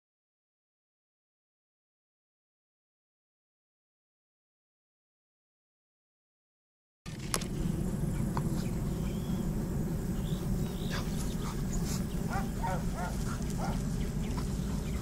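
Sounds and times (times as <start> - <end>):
low rumble: 7.1 - 15.0
quack-like animal calls: 12.3 - 13.8.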